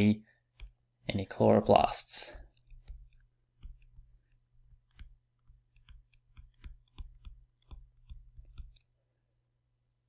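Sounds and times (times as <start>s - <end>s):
stylus tapping on tablet: 0.5s - 0.8s, 2.5s - 8.9s.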